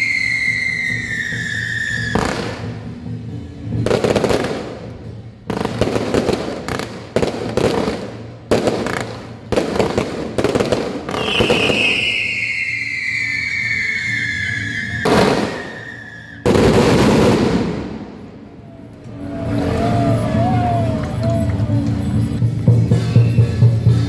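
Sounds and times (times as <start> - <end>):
high falling whistle: 0.0 - 2.1, 11.2 - 16.5
fireworks crackling: 0.0 - 3.0, 3.8 - 18.6.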